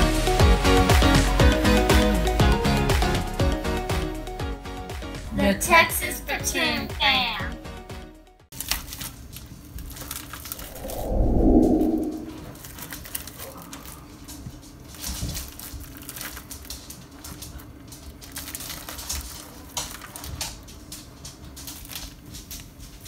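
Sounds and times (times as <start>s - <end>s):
plastic package crinkling: 15.4s - 16.7s, 18.2s - 20.3s.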